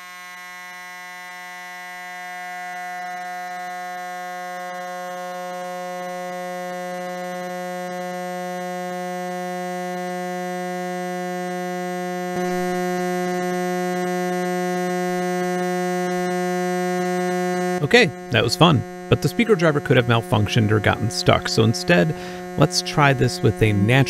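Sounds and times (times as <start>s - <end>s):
buzzing sawtooth tone: 0.0s - 24.0s.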